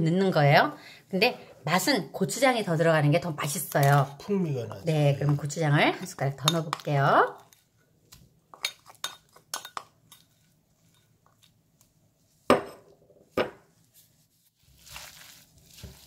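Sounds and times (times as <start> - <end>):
spoon clinking on glass bowl: 8.5 - 10.3
gloved hands tossing food: 13.9 - 16.0.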